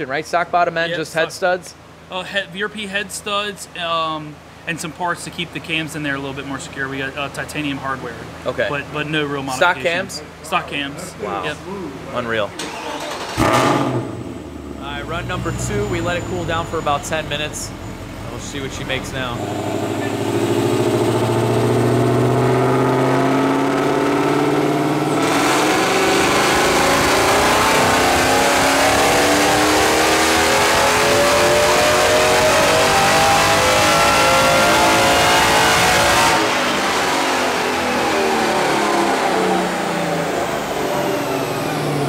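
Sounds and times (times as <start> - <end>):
car engine revving on dyno: 13.1 - 42.0.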